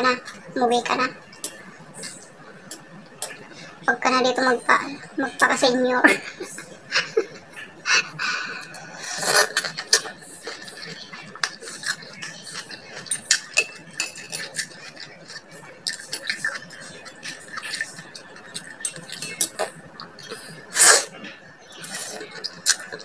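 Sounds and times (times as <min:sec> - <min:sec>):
slurping: 0:07.6 - 0:23.0.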